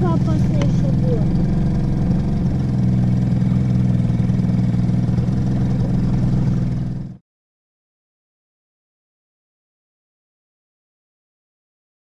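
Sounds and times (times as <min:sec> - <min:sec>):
outboard motor humming: 0:00.0 - 0:07.2.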